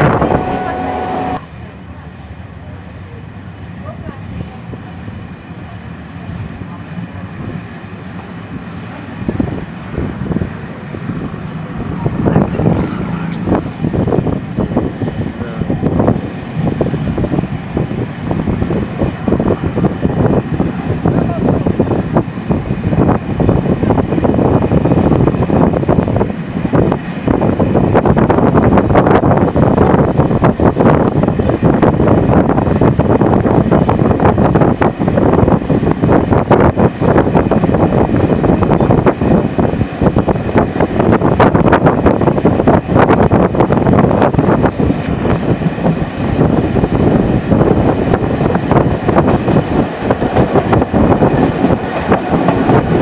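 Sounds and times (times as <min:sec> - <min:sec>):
train running noise: 0:00.0 - 0:53.0
wind buffeting microphone: 0:00.0 - 0:53.0.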